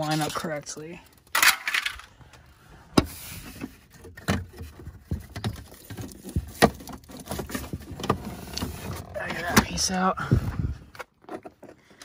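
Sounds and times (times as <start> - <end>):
plastic pieces clicking and rattling: 1.2 - 2.1.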